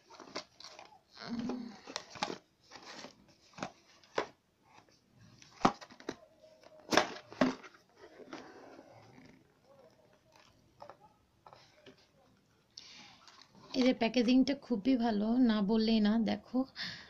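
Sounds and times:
cardboard scraping: 0.0 - 4.9, 6.9 - 9.6.

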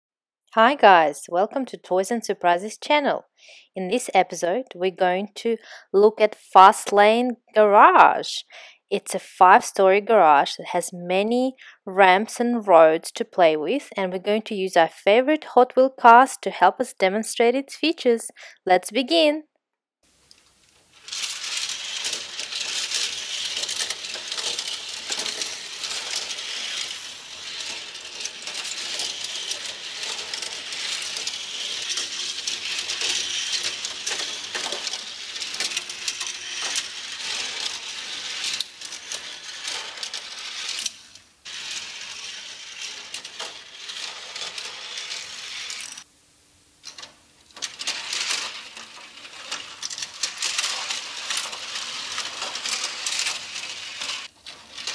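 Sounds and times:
toy cars clattering down plastic ramps: 21.0 - 46.1, 46.8 - 54.9.

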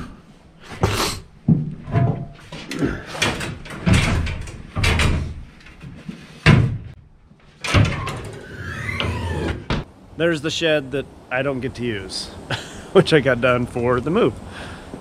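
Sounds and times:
heavy wooden thumps and knocks: 0.8 - 7.0.

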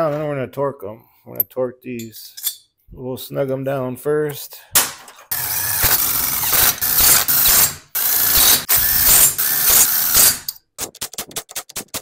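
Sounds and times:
cordless driver spinning bolts: 5.3 - 10.3.

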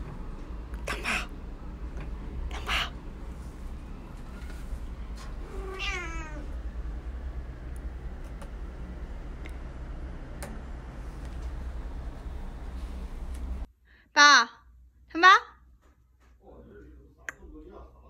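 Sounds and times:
cat meowing: 5.4 - 6.6.

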